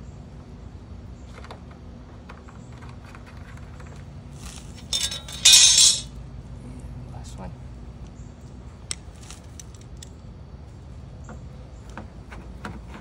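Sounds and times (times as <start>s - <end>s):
loud metal clinking rattle: 4.7s - 6.1s.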